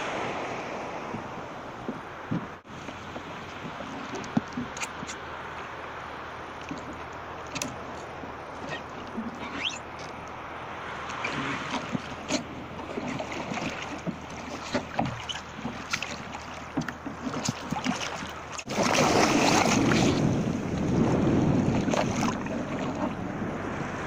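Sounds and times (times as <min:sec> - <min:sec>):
wind on microphone: 0:00.0 - 0:05.2, 0:18.7 - 0:24.0
water lapping against hull: 0:00.0 - 0:24.0
person splashing into water: 0:17.3 - 0:20.4.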